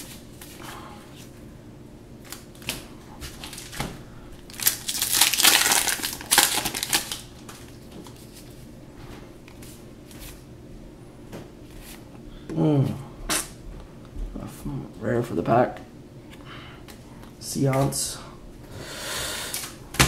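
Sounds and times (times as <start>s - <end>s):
wrapper crinkling and tearing: 3.4s - 3.8s, 4.5s - 7.6s.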